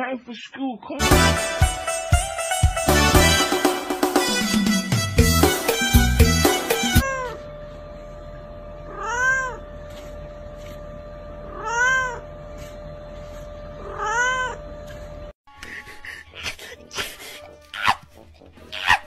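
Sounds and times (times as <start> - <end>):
cat meowing: 8.9 - 9.6, 11.5 - 12.3, 13.8 - 14.6.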